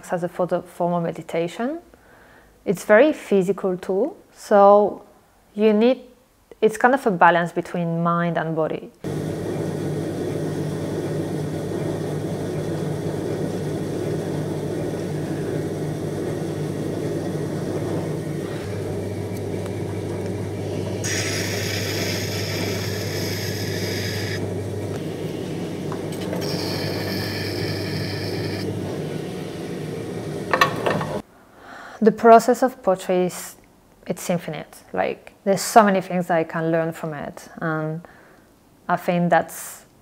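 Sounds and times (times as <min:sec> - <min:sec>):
potter's wheel motor hum: 0:09.0 - 0:31.2
tool scraping spinning clay: 0:10.5 - 0:31.2.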